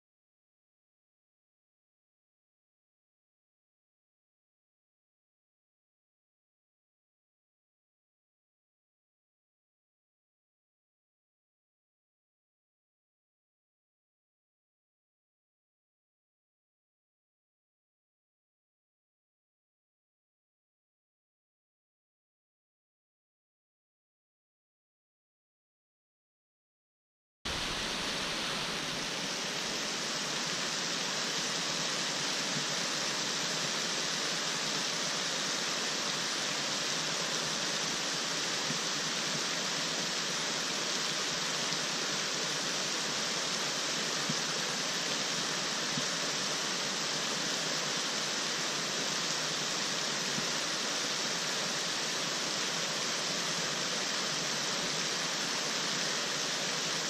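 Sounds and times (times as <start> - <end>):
steady rushing noise: 27.5 - 52.4.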